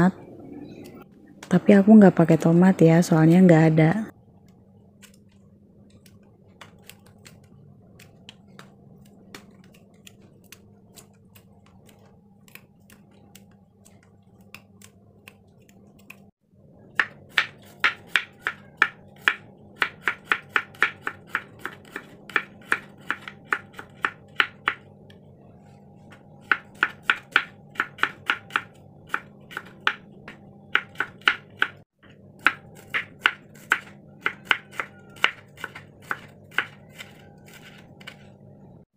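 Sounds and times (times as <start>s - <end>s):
knife chopping on wooden board: 17.0s - 24.8s, 26.4s - 31.8s, 32.4s - 38.2s.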